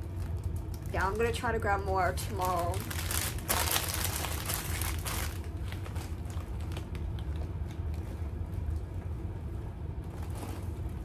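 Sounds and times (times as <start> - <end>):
plastic bags crinkling: 0.0 - 8.1
steady low hum: 0.0 - 11.0.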